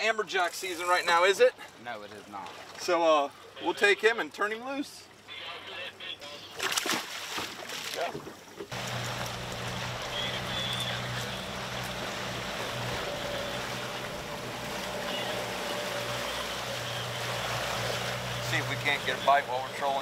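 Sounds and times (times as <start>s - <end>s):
water rushing along hull: 0.0s - 20.0s
outboard motor humming: 8.7s - 20.0s.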